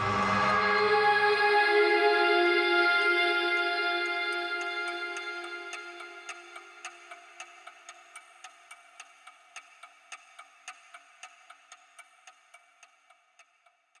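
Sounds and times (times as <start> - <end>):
held ringing chord: 0.0 - 6.3
rapid clock-like ticking: 4.1 - 14.0.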